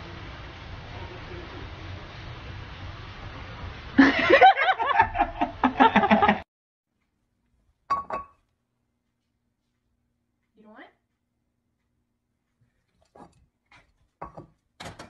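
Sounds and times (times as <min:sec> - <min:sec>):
people laughing: 0:04.0 - 0:06.4.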